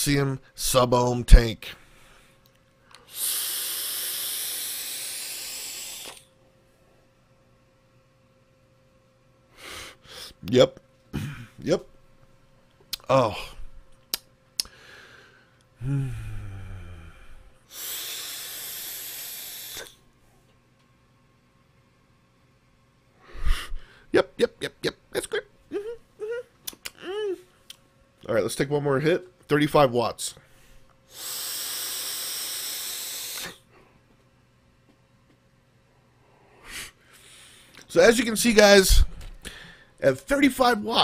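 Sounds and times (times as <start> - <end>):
air hissing through vape tank: 3.0 - 6.3, 17.7 - 20.0, 31.1 - 33.6
low vocal hum: 13.0 - 13.8, 15.8 - 19.9, 25.7 - 27.6.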